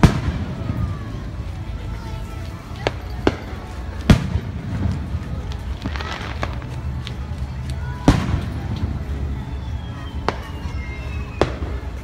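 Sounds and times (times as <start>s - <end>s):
firework booms: 0.0s - 1.1s, 3.2s - 6.7s
steady low rumble: 0.0s - 10.7s.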